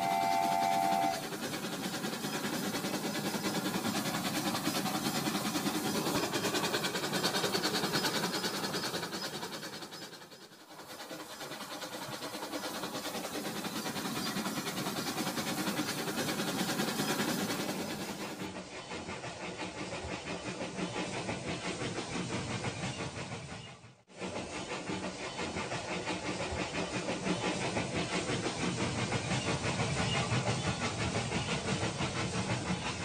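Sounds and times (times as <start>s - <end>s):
toy train electronic horn: 0.0s - 1.2s.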